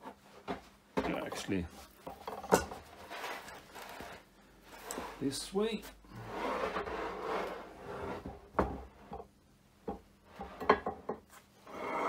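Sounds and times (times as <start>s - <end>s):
metal scraping and sliding: 2.8s - 8.4s, 11.6s - 12.0s.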